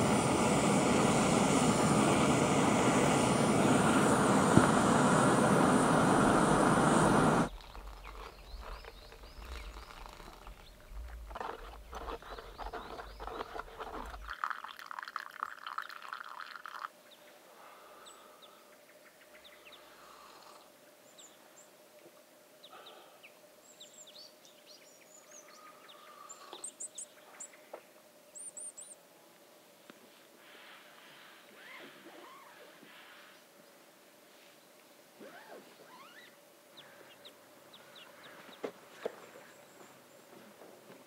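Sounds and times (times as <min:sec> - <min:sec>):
low rumbling noise: 0:00.0 - 0:14.3
small birds chirping: 0:06.4 - 0:14.3, 0:35.4 - 0:40.3
spoon scraping in silicone cup: 0:07.6 - 0:14.4.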